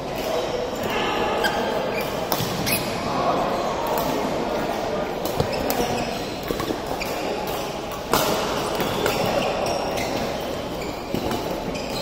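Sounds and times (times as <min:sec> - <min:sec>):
shoe squeaks on court: 0:01.4 - 0:03.1, 0:05.4 - 0:07.5, 0:08.6 - 0:12.0.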